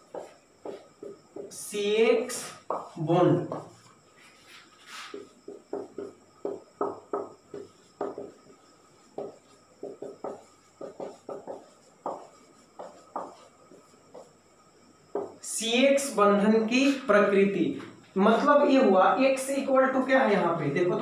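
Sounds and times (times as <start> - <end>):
marker pen writing on whiteboard: 0.0 - 16.2.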